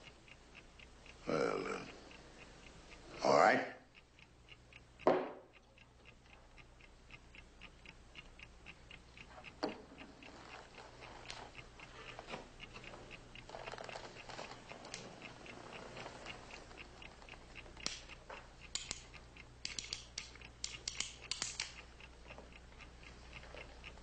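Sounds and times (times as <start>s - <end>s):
clock ticking: 0.0s - 24.0s
sharp knock: 5.0s - 5.4s.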